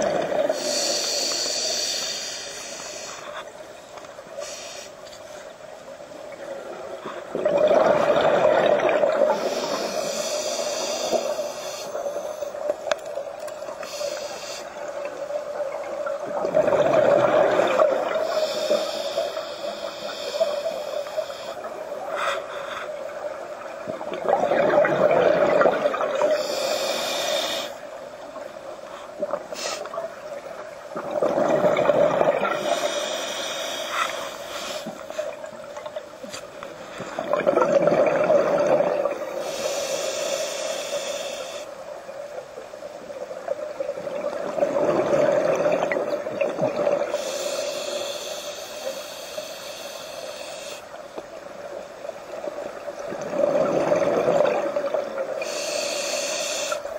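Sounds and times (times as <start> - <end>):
regulator inhale hiss: 0.4 - 3.6, 4.2 - 5.6, 9.3 - 13.0, 13.7 - 15.2, 17.6 - 23.2, 26.2 - 28.0, 28.8 - 30.0, 32.5 - 35.5, 39.3 - 41.8, 47.1 - 51.2, 55.2 - 56.9
bubbling rush of exhaled air: 7.3 - 10.1, 16.2 - 18.3, 24.1 - 26.5, 30.9 - 32.9, 37.2 - 39.2, 53.0 - 55.6.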